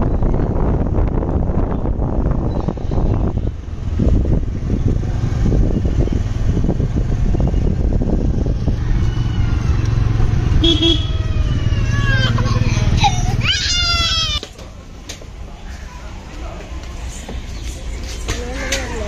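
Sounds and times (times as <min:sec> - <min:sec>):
wind noise on microphone: 0:00.0 - 0:14.4
vehicle engine hum: 0:00.0 - 0:19.0.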